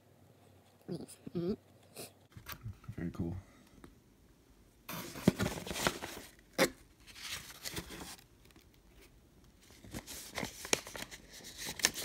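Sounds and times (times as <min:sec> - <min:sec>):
cardboard and paper rustling: 0:04.9 - 0:06.4, 0:07.0 - 0:12.0.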